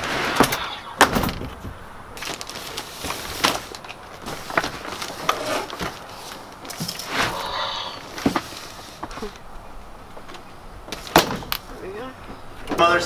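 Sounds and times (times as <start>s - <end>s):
wrapping paper rustling: 2.2s - 7.1s.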